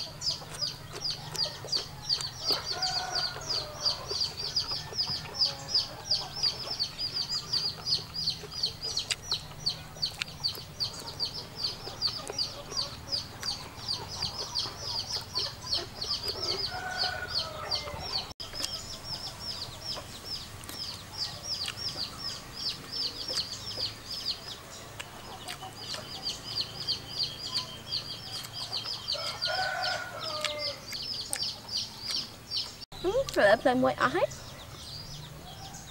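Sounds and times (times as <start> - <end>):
chick peeping: 0.0 - 35.9.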